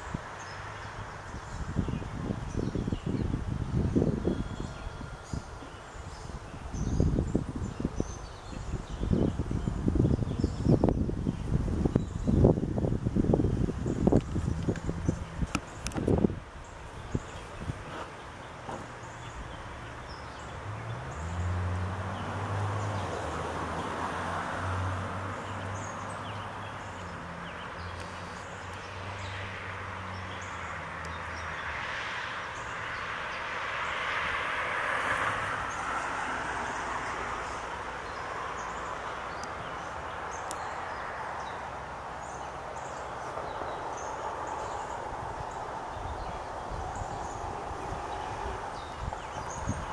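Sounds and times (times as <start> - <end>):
low engine hum: 0.0 - 31.8
passing vehicle rush: 0.0 - 49.9.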